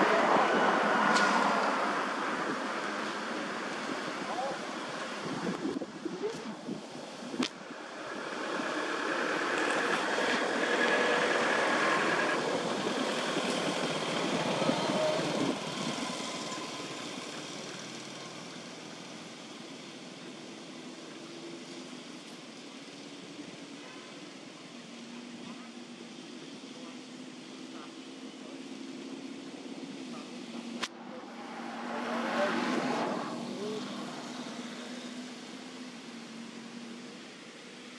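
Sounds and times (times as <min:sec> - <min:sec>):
vehicle engine passing: 0:07.9 - 0:18.6, 0:30.9 - 0:35.6.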